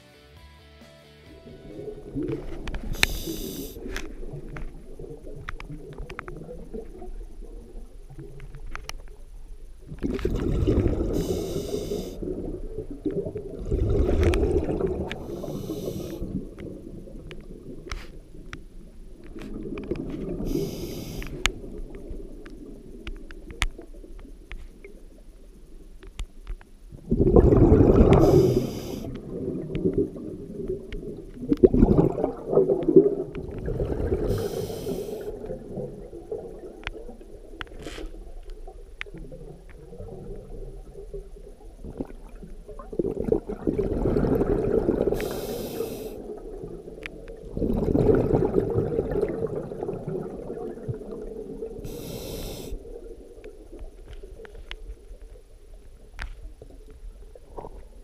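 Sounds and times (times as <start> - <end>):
exhaled bubbles underwater: 1.5 - 25.3, 26.9 - 58.0
regulator hiss: 2.7 - 4.2, 11.0 - 12.3, 15.2 - 16.4, 20.3 - 21.7, 28.1 - 29.2, 34.2 - 35.4, 45.1 - 46.3, 51.8 - 53.0.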